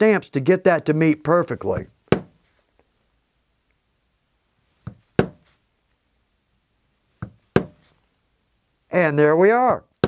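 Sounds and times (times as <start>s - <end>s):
maul striking stamping tool: 2.1s - 2.4s, 4.9s - 5.4s, 7.2s - 7.8s.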